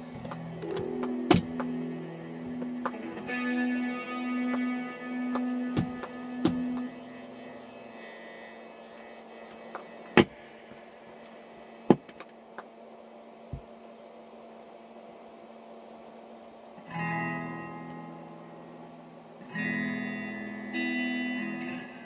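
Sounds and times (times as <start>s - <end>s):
guitar note: 0.0s - 12.0s, 16.8s - 22.0s
guitar strumming: 0.0s - 12.1s, 16.8s - 22.0s
low electrical hum: 0.0s - 22.0s
sharp knocks: 5.4s - 6.9s.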